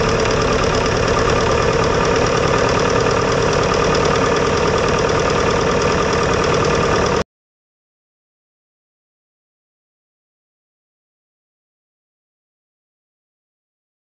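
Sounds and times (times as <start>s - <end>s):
aircraft piston engine running: 0.0s - 7.2s.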